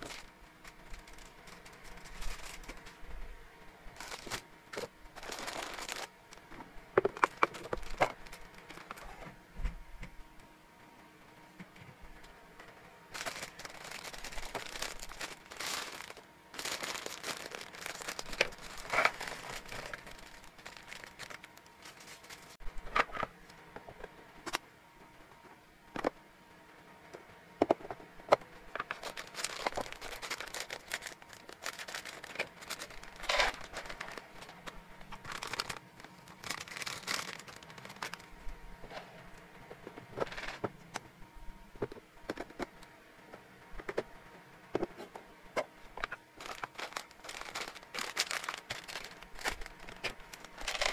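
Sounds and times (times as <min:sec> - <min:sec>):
plastic packaging crinkling: 0:00.0 - 0:03.0, 0:04.0 - 0:06.5, 0:07.1 - 0:09.2, 0:13.1 - 0:22.6, 0:28.8 - 0:38.3, 0:46.0 - 0:50.9.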